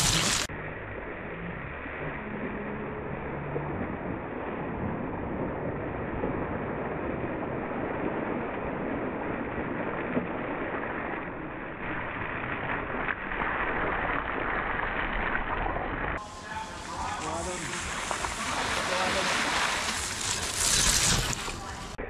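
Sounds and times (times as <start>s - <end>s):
bikes splashing through puddle: 0.0s - 22.0s
wind noise on microphone: 1.9s - 14.3s.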